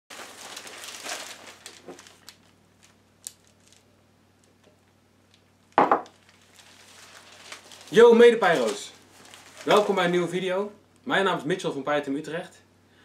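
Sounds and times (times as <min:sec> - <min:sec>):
newspaper pages rustling: 0:00.1 - 0:03.9, 0:06.2 - 0:10.3.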